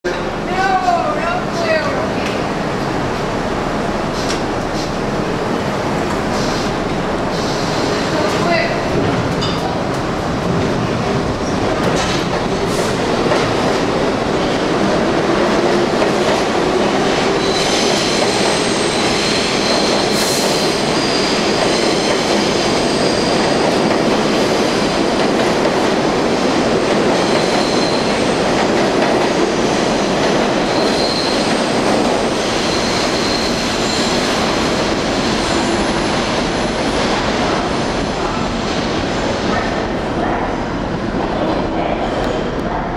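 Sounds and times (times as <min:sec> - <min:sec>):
subway train running on rails: 0:00.0 - 0:42.9
high wheel squeal: 0:30.7 - 0:31.5, 0:32.5 - 0:34.3.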